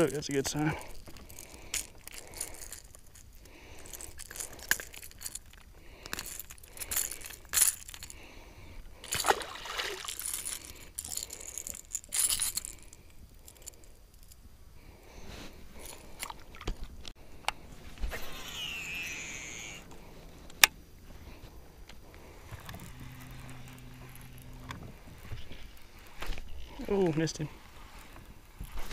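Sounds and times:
fishing lure hooks clinking: 0.0s - 8.2s, 10.0s - 14.4s
water splashing: 9.2s - 10.2s.

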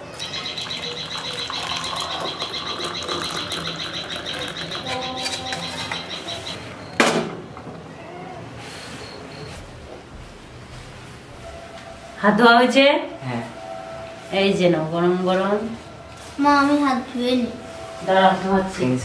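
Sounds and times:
high-pitched pulsing trill: 0.0s - 6.8s
tea pouring into mug: 0.6s - 4.9s.

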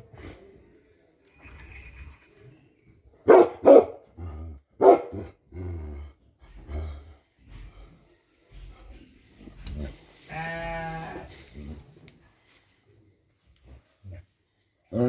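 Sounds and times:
dog barking: 3.2s - 4.0s, 4.8s - 5.2s.

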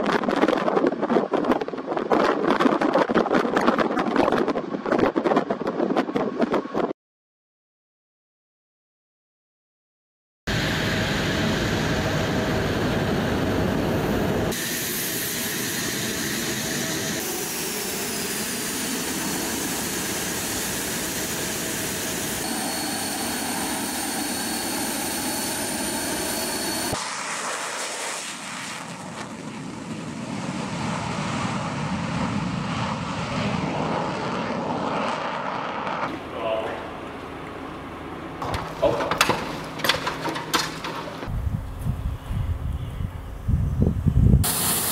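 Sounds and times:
jet flying past: 10.5s - 41.4s
jet engine rush: 10.5s - 42.6s, 44.0s - 44.9s
jet engine high whine: 10.5s - 44.9s.

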